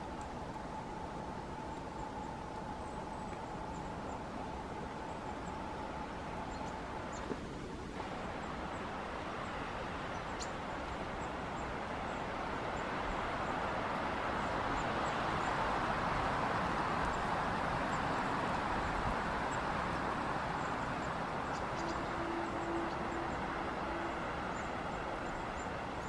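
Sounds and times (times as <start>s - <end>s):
faint high ticks: 0.0s - 0.7s, 3.2s - 3.9s
wind rushing through trees: 0.0s - 26.0s.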